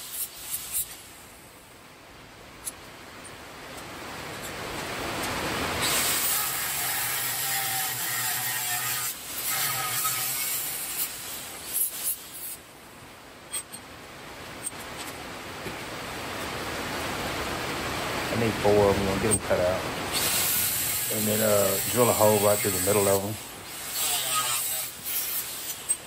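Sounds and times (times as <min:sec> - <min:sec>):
angle grinder cutting steel: 0:05.8 - 0:12.6, 0:20.1 - 0:26.0.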